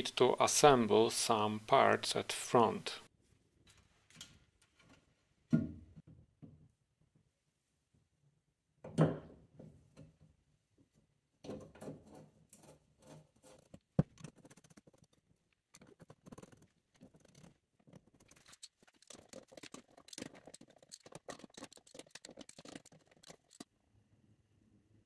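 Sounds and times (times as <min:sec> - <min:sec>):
hands scraping metal parts: 0:15.8 - 0:23.6.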